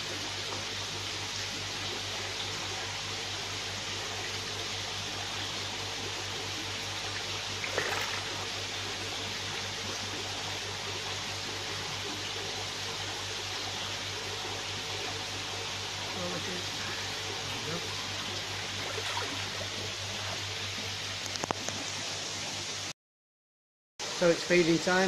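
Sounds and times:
low steady hum: 0.0 - 22.9
water rushing in tanks: 0.0 - 22.9.

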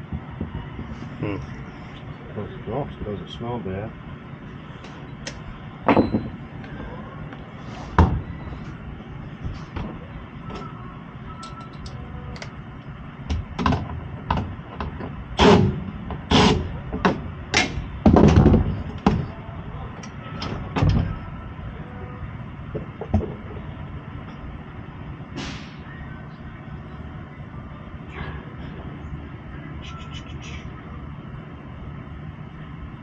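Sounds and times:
knocks and clunks in furnace: 5.9 - 6.4, 7.9 - 8.3, 13.3 - 19.4, 20.4 - 21.2, 22.7 - 23.7.

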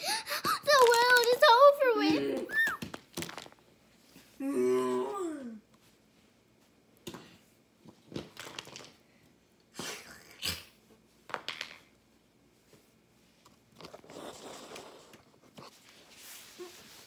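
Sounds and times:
plastic toys clicking on concrete: 0.7 - 1.4
soft rustle: 15.4 - 17.0.

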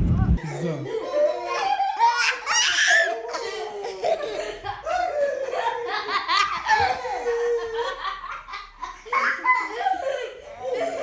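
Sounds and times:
children laughing: 0.4 - 11.0.

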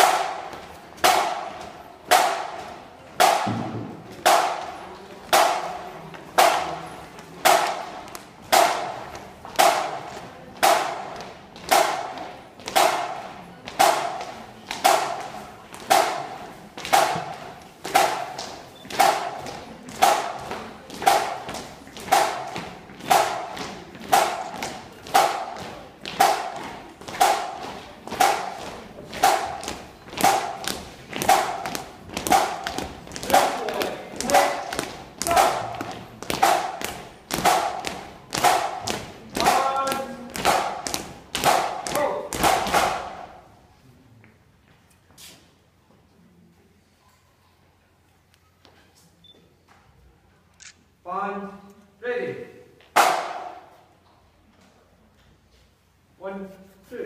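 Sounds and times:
drum beating steadily: 0.0 - 4.7, 5.3 - 5.8, 6.4 - 6.8, 7.4 - 43.5.

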